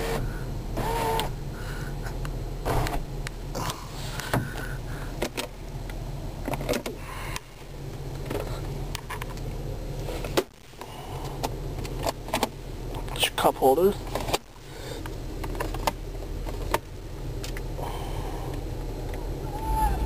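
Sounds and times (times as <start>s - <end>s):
car engine idling: 14.6s - 20.0s.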